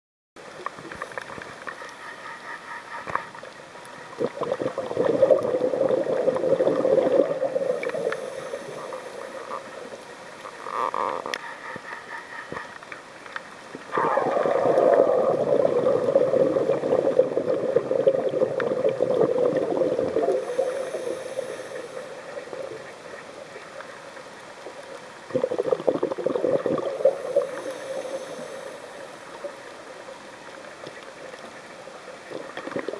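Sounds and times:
underwater exhale bubbling: 4.1s - 10.0s, 13.9s - 23.2s, 25.2s - 29.5s, 32.3s - 32.9s.

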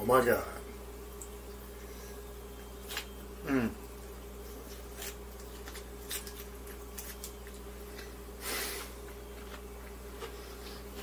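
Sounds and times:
steady low hum: 0.0s - 11.0s
person chewing food: 2.6s - 11.0s.

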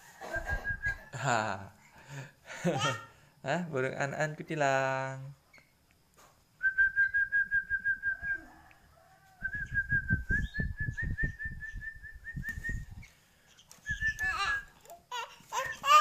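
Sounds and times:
soft low thumps: 9.4s - 13.0s.

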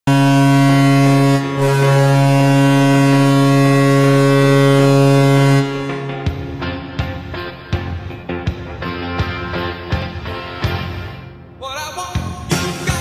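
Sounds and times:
deep goal horn blasts: 0.0s - 8.0s.

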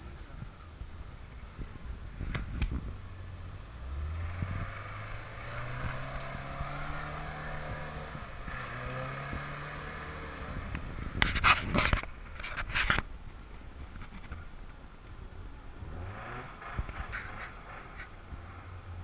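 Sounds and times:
truck engine revving: 3.7s - 11.2s.

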